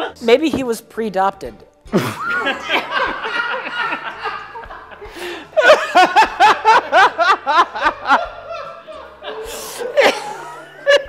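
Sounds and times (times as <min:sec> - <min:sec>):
men laughing: 0:01.9 - 0:11.0.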